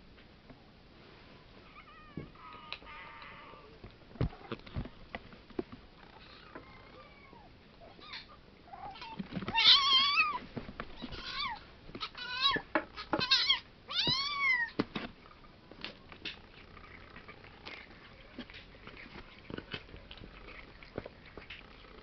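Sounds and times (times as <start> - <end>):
cats meowing: 1.6 - 4.9, 6.0 - 15.5.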